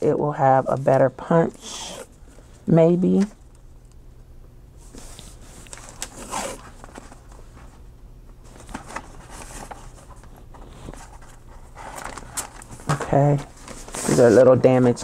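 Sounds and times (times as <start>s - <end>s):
tape scraping on paper: 4.9s - 7.0s
paper rustling: 4.9s - 7.8s, 8.4s - 15.0s.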